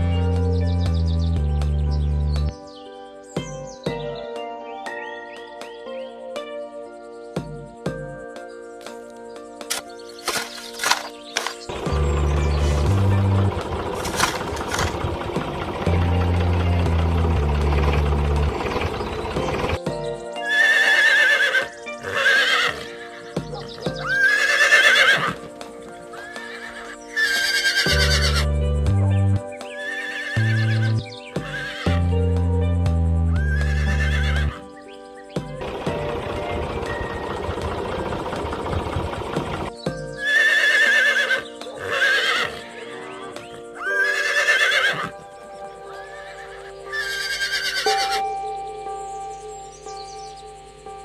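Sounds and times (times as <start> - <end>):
light background music: 0.0 - 51.0
horse whinnying: 20.5 - 23.3, 24.0 - 25.5, 26.2 - 28.5, 29.8 - 32.0, 33.4 - 34.6, 40.2 - 45.2, 46.0 - 48.2.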